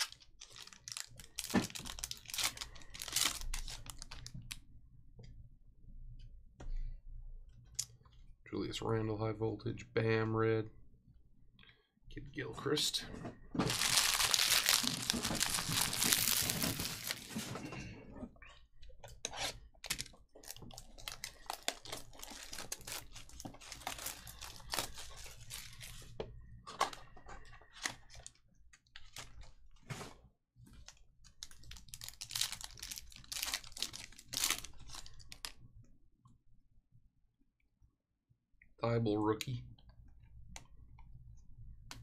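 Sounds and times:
packaging being torn open: 0.0 - 4.3, 13.7 - 17.4, 31.4 - 35.5
wrapper crinkling: 0.0 - 4.5, 13.6 - 17.6, 19.8 - 26.2, 30.8 - 35.5.

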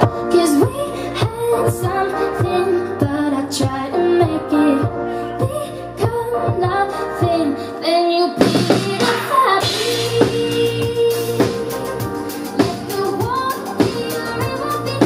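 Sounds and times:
pop backing music: 0.0 - 15.0
woman singing: 0.0 - 15.0
kick drum: 3.6 - 7.4.

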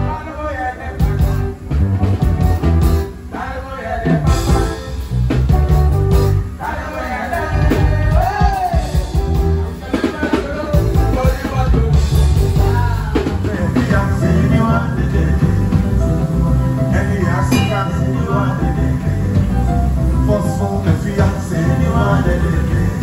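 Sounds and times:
electric guitar: 0.0 - 6.7, 7.3 - 23.0
drums: 0.0 - 23.0
man singing into microphone: 6.6 - 9.1, 9.8 - 19.4, 20.2 - 23.0.

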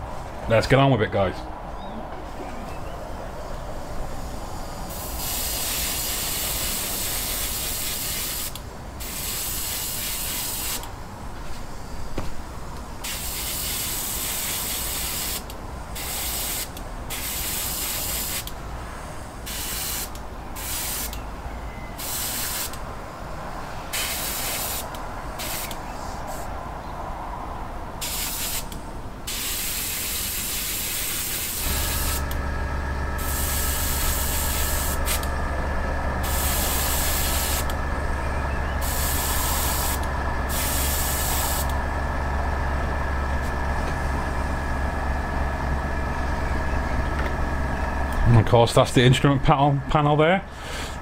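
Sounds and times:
airbrush spraying hiss: 4.6 - 10.9, 13.0 - 18.5, 19.4 - 21.1, 22.0 - 22.8, 23.9 - 26.5, 28.0 - 32.4, 33.2 - 35.3, 36.2 - 37.8, 38.8 - 41.7
low steady hum: 31.6 - 51.0.

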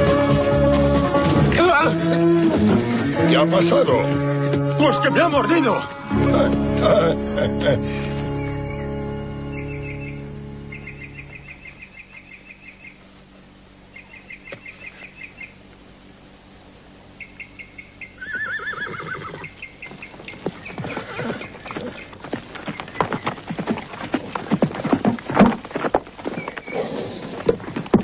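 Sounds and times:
hooves clopping: 0.0 - 7.6, 8.2 - 13.0, 14.0 - 15.8, 17.6 - 28.0
high chirping trills: 8.2 - 13.1, 13.9 - 15.6, 17.2 - 23.4
horse whinnying: 18.2 - 19.6, 20.3 - 22.2, 26.5 - 27.6.

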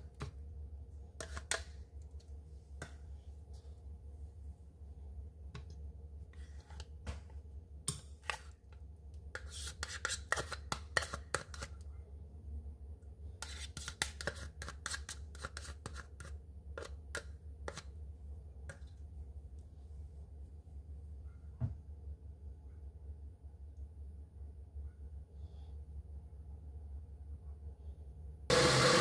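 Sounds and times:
low steady hum: 0.0 - 9.5, 10.7 - 13.6, 15.9 - 28.6
spoon scraping plastic cups: 1.2 - 1.8, 9.4 - 11.8, 13.4 - 17.9.

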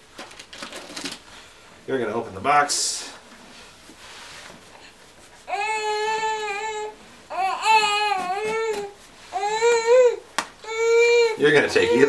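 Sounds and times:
baby crying: 5.5 - 12.0.

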